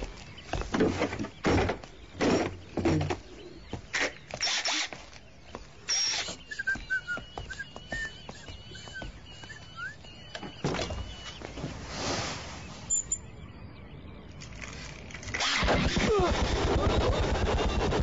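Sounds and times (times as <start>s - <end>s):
birds chirping: 0.0s - 16.3s.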